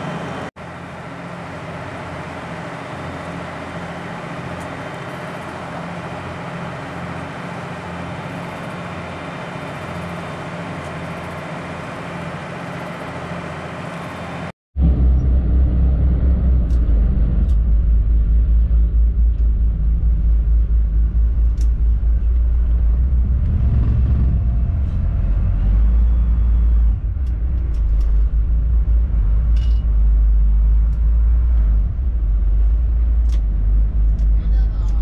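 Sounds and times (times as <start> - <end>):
boat engine rumbling: 0.0 - 35.0.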